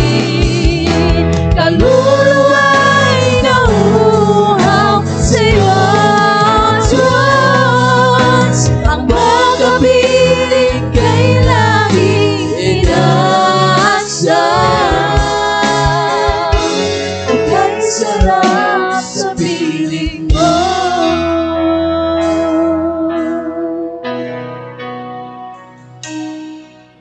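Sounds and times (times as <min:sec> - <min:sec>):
women singing worship song: 0:00.0 - 0:23.4
live band playing: 0:00.0 - 0:27.0.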